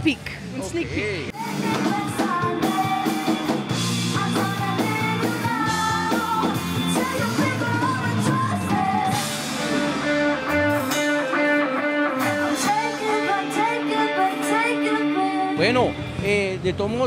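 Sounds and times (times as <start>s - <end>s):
woman singing lead: 1.3s - 10.6s, 12.2s - 15.6s
rock band playing: 1.3s - 17.0s.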